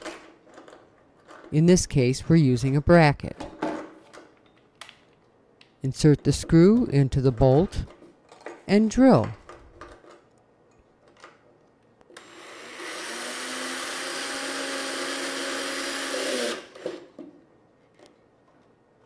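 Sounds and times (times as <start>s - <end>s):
power drill motor whirring: 12.2s - 17.1s.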